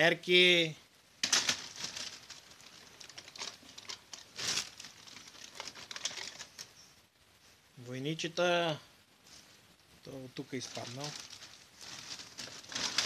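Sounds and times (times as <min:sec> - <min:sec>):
plastic bag crinkling: 0:01.2 - 0:06.8, 0:10.5 - 0:13.0.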